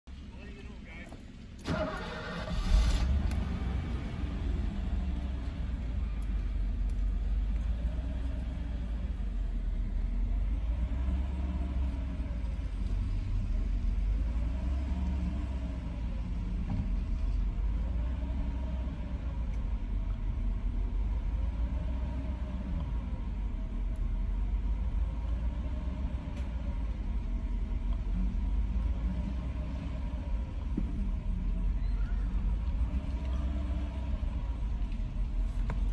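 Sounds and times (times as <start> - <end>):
car engine idling: 0.0 - 35.9.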